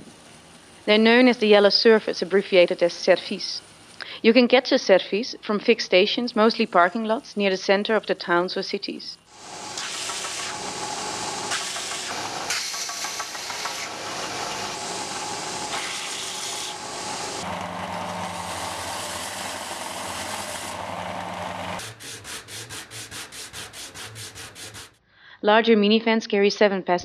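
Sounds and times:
belt sander hiss: 9.3s - 25.0s
file strokes on wood: 11.5s - 14.7s, 15.6s - 25.0s.

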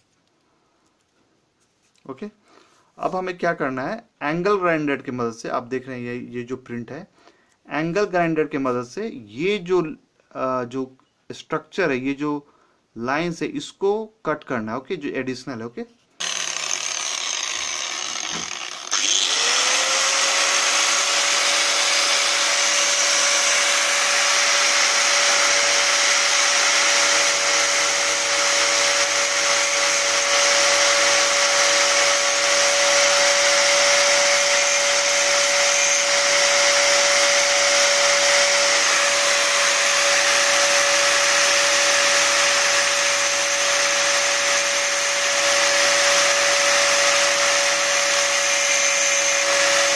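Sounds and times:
angle grinder cutting metal: 16.2s - 49.9s.

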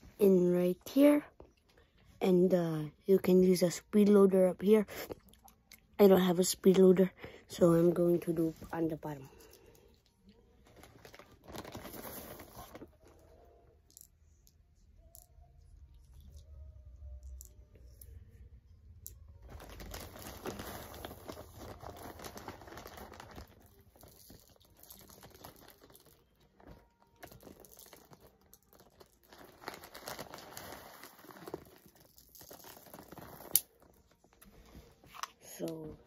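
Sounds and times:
plastic bag crinkling: 10.6s - 13.3s, 19.4s - 34.4s.

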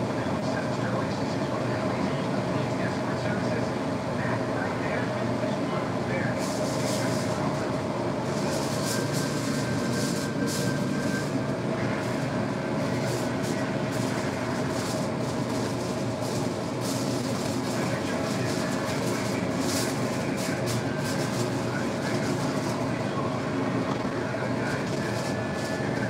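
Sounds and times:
steady mechanical drone: 0.0s - 26.0s
aluminium foil crinkling: 13.1s - 22.8s.

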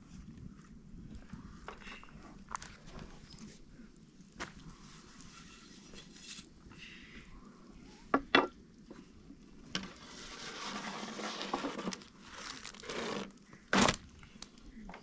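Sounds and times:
dry flatbreads crinkling and rustling: 9.8s - 14.8s.

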